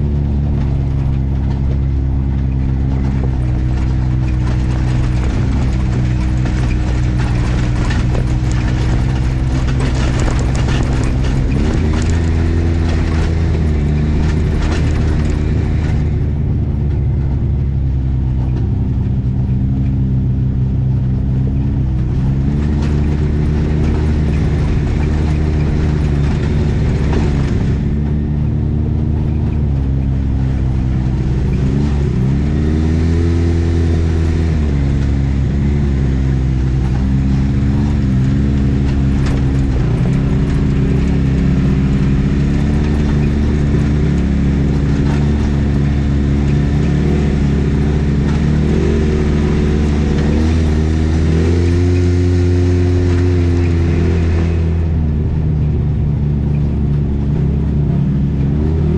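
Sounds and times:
utility vehicle engine revving: 0:00.0 - 0:58.9.

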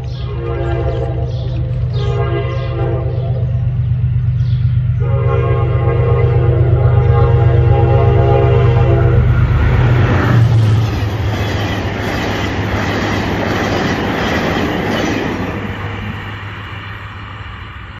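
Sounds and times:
locomotive engine drone: 0:00.0 - 0:17.9
train wheels clattering on rails: 0:09.5 - 0:16.9.

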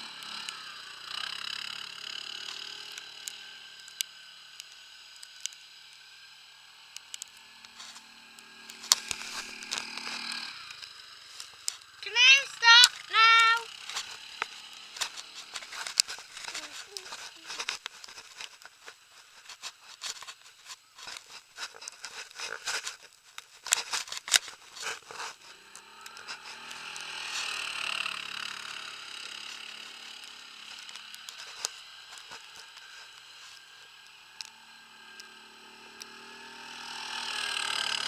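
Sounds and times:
quad bike engine: 0:00.0 - 0:38.0
sharp crackles and knocks: 0:08.7 - 0:11.9, 0:13.8 - 0:27.4.

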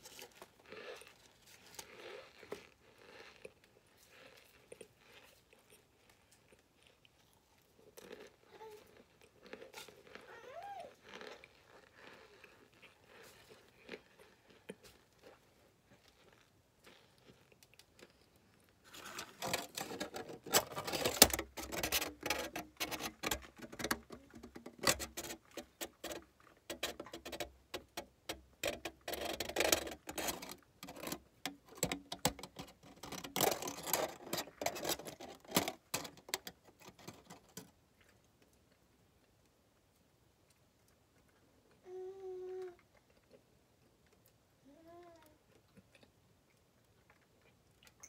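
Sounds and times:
aluminium foil crinkling: 0:18.8 - 0:37.7.

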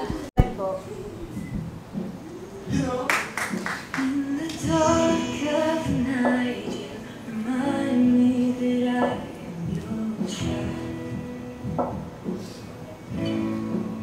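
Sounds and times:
worship song: 0:02.3 - 0:11.8
person singing long notes: 0:04.0 - 0:11.4.

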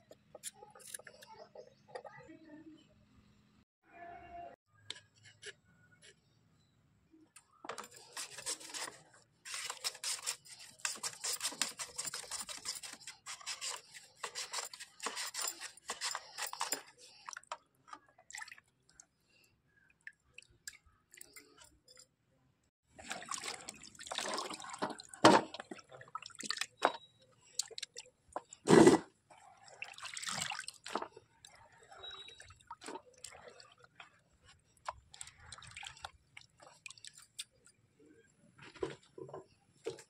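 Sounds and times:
potato rasping on grater: 0:08.1 - 0:16.7
water splashing: 0:23.0 - 0:26.7, 0:29.6 - 0:31.0.

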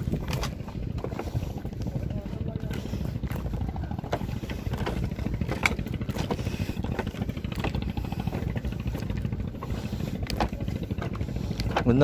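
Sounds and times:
footsteps on bamboo walkway: 0:00.0 - 0:12.0
steady low rumble: 0:00.0 - 0:12.0.

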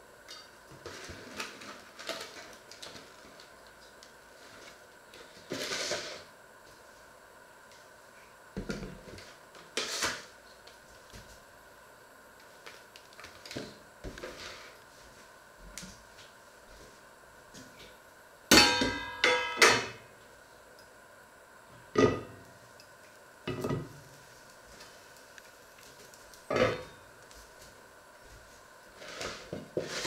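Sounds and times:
metal pans clanging: 0:18.6 - 0:20.0.

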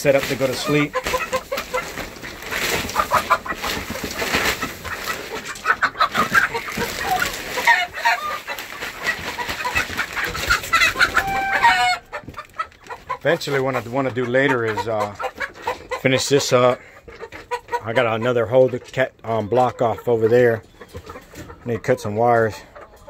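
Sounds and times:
pine shavings rustling: 0:00.0 - 0:12.0
chickens clucking and calling: 0:00.0 - 0:23.0.

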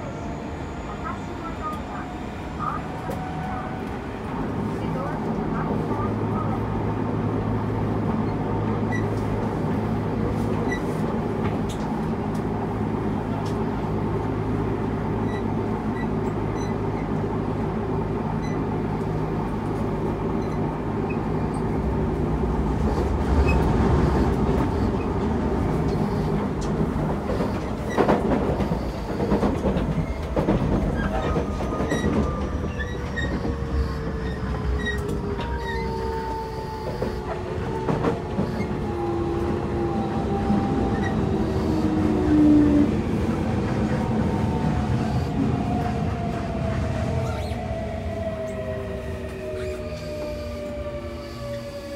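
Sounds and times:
train drive whine: 0:00.0 - 0:51.9
wheels rumbling on rail: 0:00.0 - 0:51.9
rail-joint clicks: 0:10.4 - 0:12.5, 0:23.0 - 0:38.8.

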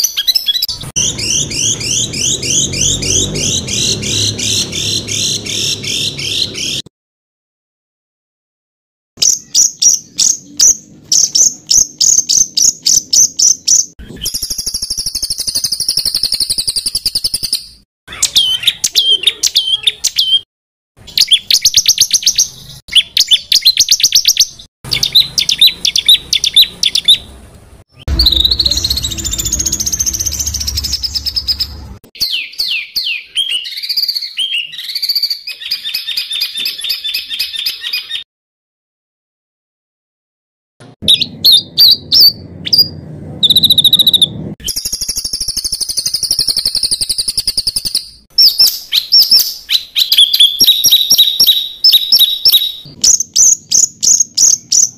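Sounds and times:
songbird song: 0:00.0 - 0:06.9, 0:09.2 - 0:38.3, 0:41.1 - 0:54.9
low rumble: 0:00.7 - 0:06.4, 0:27.2 - 0:32.0, 0:41.7 - 0:44.6.

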